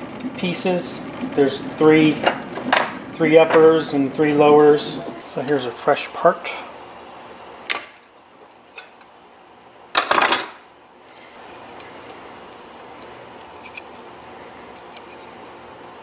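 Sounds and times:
spatula scraping print bed: 1.0s - 5.3s.

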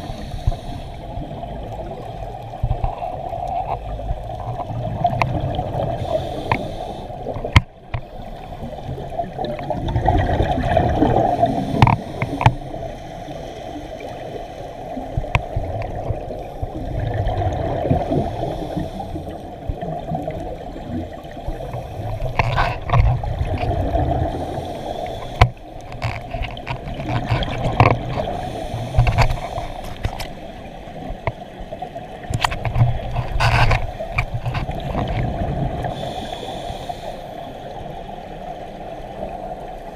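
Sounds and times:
diver breathing underwater: 0.0s - 1.4s, 5.3s - 19.8s, 21.4s - 31.4s, 33.1s - 37.8s
steady underwater hiss: 0.0s - 39.9s
sharp clicks and knocks: 7.3s - 8.1s, 11.8s - 12.6s, 22.2s - 23.7s, 25.3s - 28.3s, 32.2s - 35.3s
bubbles rushing: 8.9s - 11.5s.

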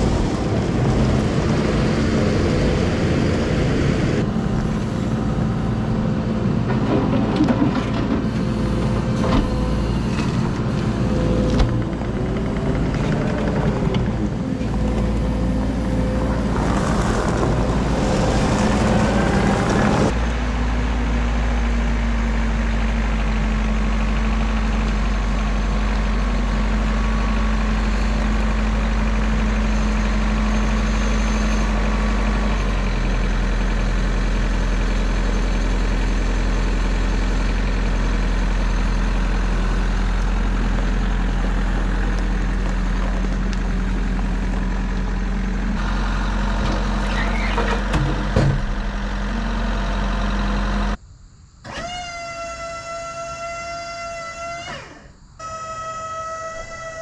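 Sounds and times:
engine idling: 0.0s - 57.0s.

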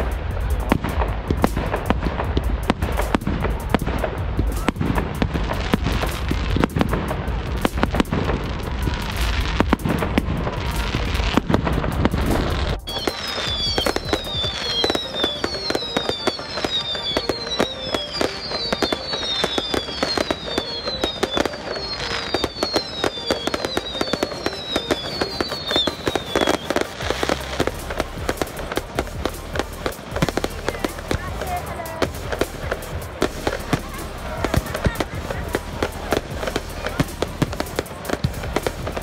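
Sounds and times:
fireworks bangs and crackles: 0.0s - 39.0s
high falling whistle: 12.7s - 27.0s.

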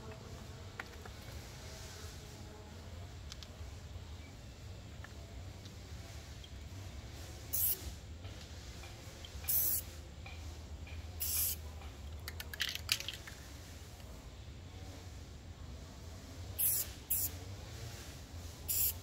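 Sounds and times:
spray paint can spraying: 7.5s - 7.9s, 9.2s - 9.9s, 11.2s - 11.6s, 16.6s - 17.4s, 18.6s - 19.0s
clicks and rattles: 12.1s - 13.5s.

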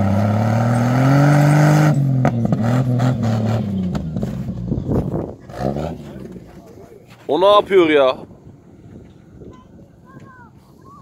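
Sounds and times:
engine revving hard: 0.0s - 3.9s, 5.4s - 6.3s.

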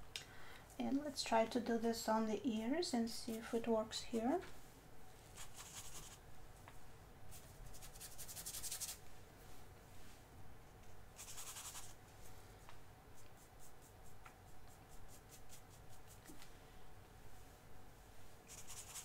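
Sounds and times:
paintbrush scratching on paper: 5.3s - 6.2s, 7.3s - 9.0s, 11.2s - 12.0s, 13.1s - 16.2s, 18.2s - 19.0s.

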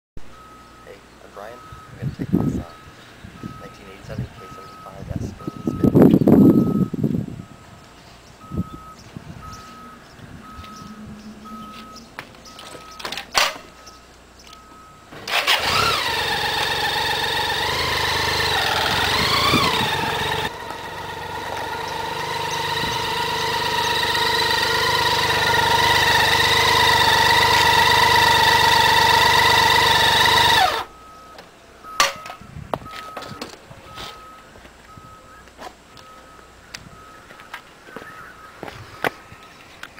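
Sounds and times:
faint beep: 0.2s - 7.8s, 8.4s - 15.1s, 30.9s - 38.7s
motorcycle engine revving: 9.4s - 13.0s, 15.1s - 30.9s.

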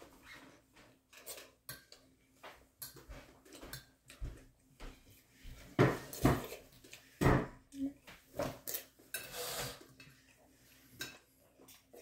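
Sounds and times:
fork scraping on plate: 8.7s - 11.8s.

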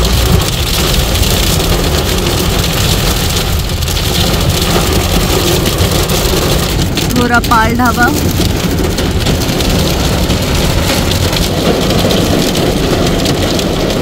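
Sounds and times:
heavy rain on car roof: 0.0s - 14.0s
tyres on flooded road: 0.0s - 14.0s.

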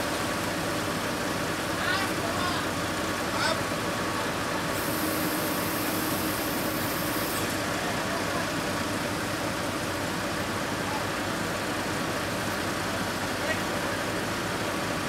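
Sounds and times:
forklift diesel engine running: 0.0s - 15.0s
high hiss: 4.8s - 7.5s.

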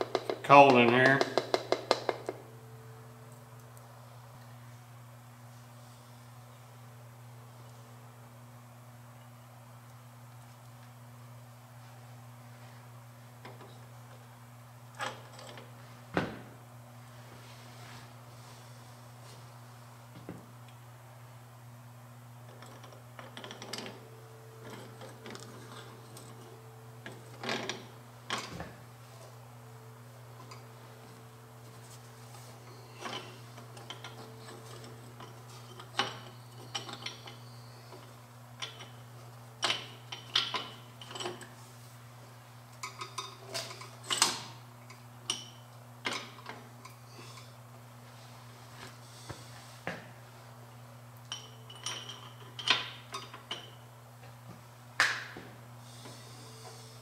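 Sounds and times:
steady low hum: 0.0s - 57.0s
metal tools clinking and scraping: 32.3s - 39.0s, 42.8s - 44.4s, 51.3s - 53.8s.

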